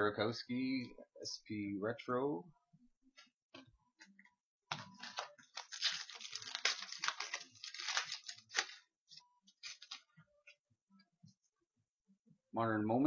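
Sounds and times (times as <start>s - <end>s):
wrapper tearing and crinkling: 5.0s - 8.8s.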